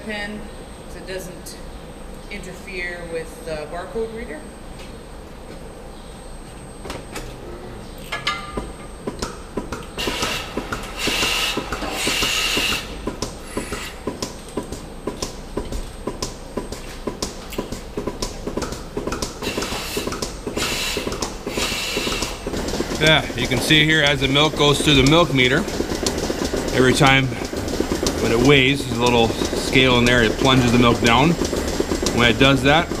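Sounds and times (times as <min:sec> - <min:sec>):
milking machines clicking: 0:08.3 - 0:33.0
hissing air bursts: 0:10.0 - 0:14.3, 0:19.3 - 0:33.0.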